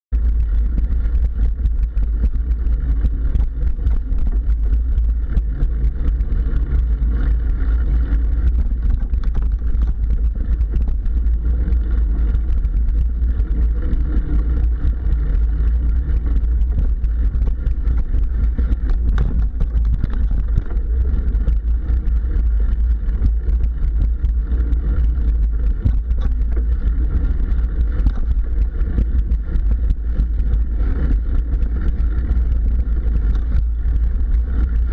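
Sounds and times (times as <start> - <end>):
wind rumble on microphone: 0.0 - 34.9
bike knocks and rattles: 0.1 - 34.9.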